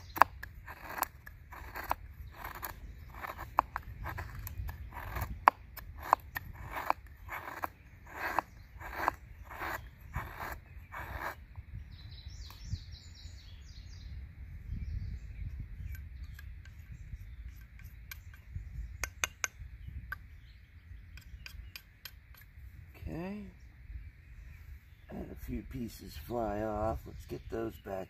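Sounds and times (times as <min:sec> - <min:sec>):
rasping strokes on wood: 0:00.0 - 0:11.4
bird chirping: 0:00.0 - 0:28.0.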